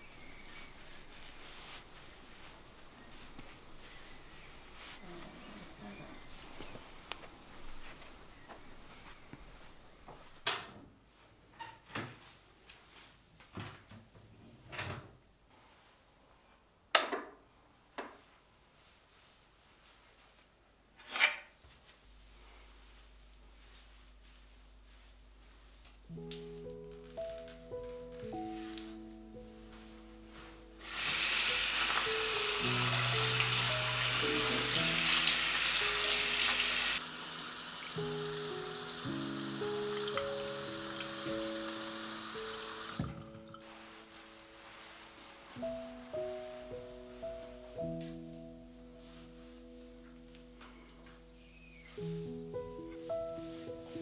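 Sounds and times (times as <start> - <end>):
soft background music: 0.1 - 9.9, 23.6 - 54.0
tap water running: 30.8 - 43.6.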